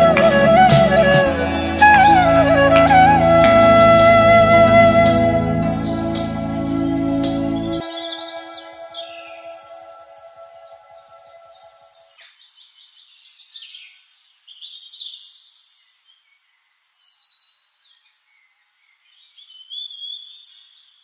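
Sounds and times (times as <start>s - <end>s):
songbirds chirping and trilling: 5.5s - 21.0s.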